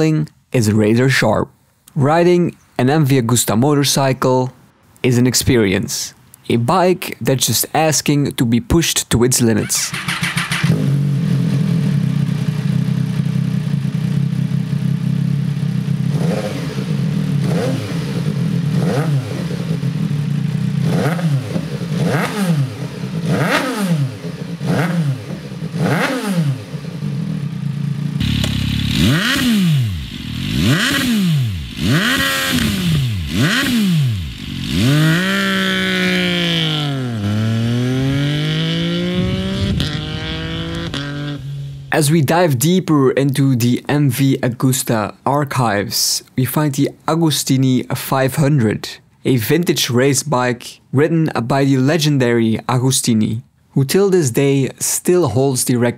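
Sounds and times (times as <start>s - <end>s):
motorcycle engine revving: 9.6s - 41.9s.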